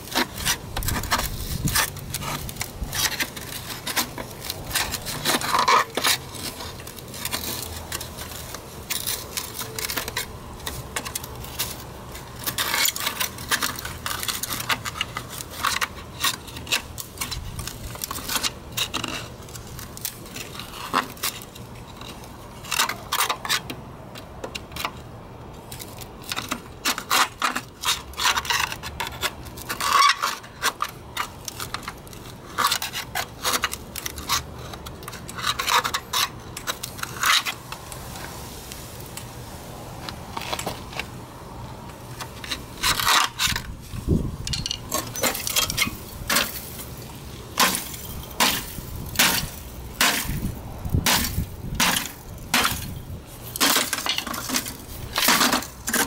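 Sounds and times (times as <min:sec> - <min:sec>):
metal rod scraping sheet metal: 0:00.0 - 0:23.7, 0:42.3 - 0:46.8.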